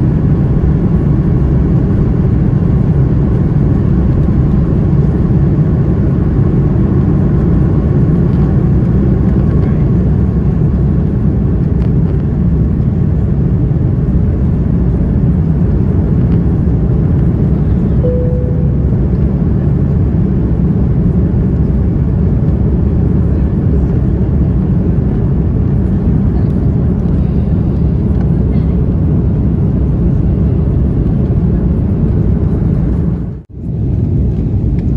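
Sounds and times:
jet engines roaring in cabin: 0.0 - 34.9
brief clear tone: 18.0 - 19.4.

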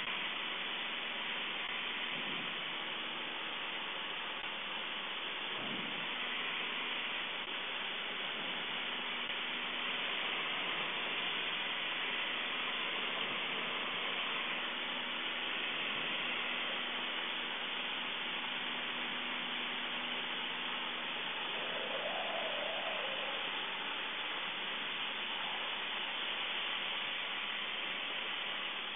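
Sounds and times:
rush of air: 20.9 - 26.7.

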